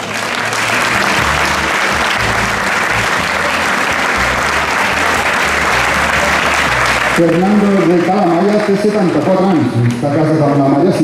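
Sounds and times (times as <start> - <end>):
audience applauding: 0.0 - 11.0
music with bass line: 0.8 - 7.3.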